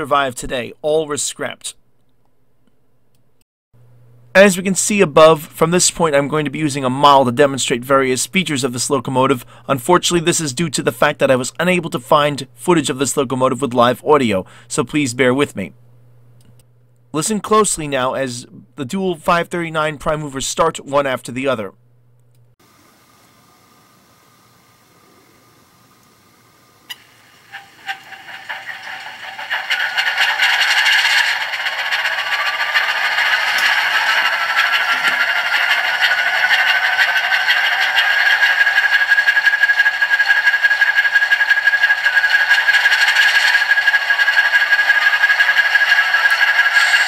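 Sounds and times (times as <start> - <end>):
click: 2.0 - 3.4, 16.4 - 17.0, 22.2 - 22.6.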